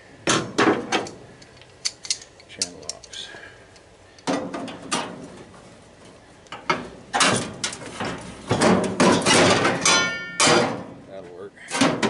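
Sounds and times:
metal clanks and scraping: 0:04.2 - 0:11.0, 0:11.6 - 0:12.0.

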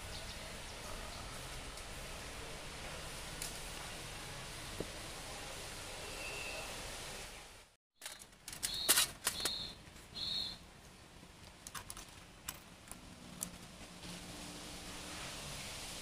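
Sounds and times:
steady hiss: 0:00.0 - 0:07.8, 0:13.6 - 0:16.0.

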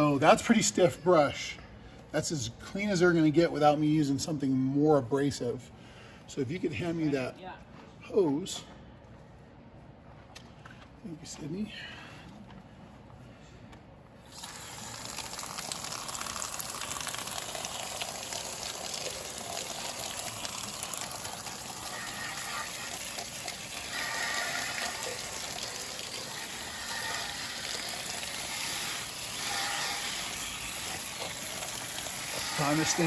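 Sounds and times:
hose spraying water: 0:14.2 - 0:33.0.

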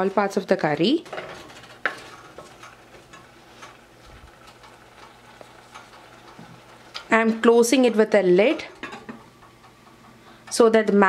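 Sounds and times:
wooden spatula scraping saucepan: 0:00.9 - 0:09.3.

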